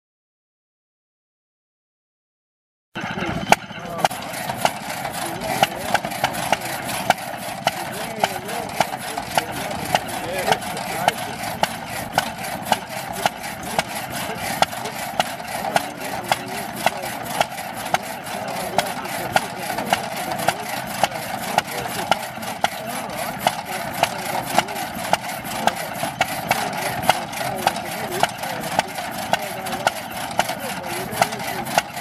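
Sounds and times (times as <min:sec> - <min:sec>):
small engine running: 0:03.0 - 0:32.0.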